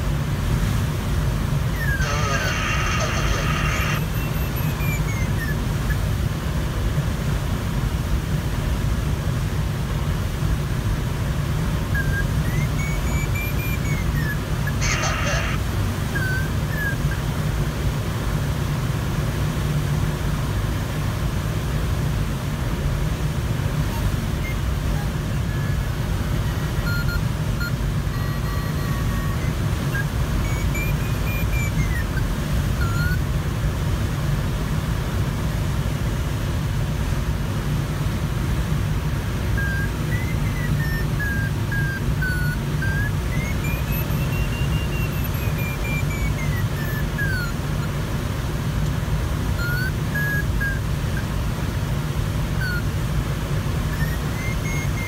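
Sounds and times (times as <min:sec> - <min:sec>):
airflow rushing around canopy: 0:00.0 - 0:55.0
variometer beeps and tones: 0:01.6 - 0:06.2, 0:11.6 - 0:17.6, 0:23.5 - 0:33.4, 0:39.0 - 0:55.0.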